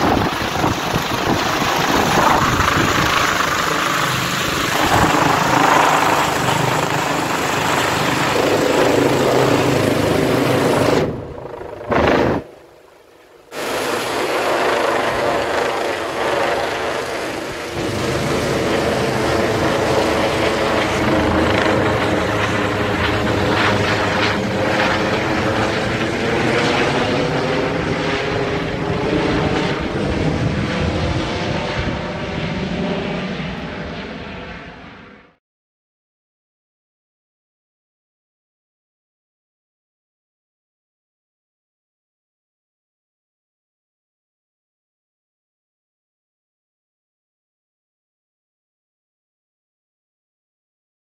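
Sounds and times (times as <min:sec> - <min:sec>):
helicopter rotor drone: 0:00.0 - 0:35.4.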